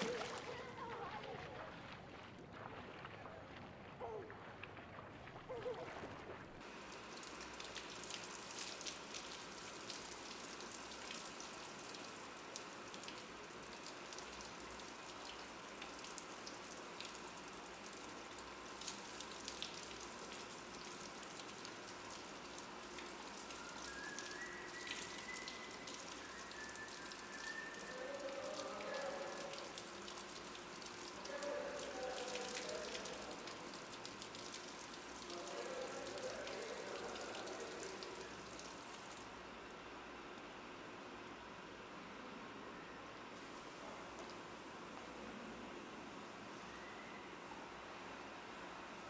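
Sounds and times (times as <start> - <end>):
water spattering on tiles: 0.0 - 39.3
shower spray hissing: 23.1 - 29.5.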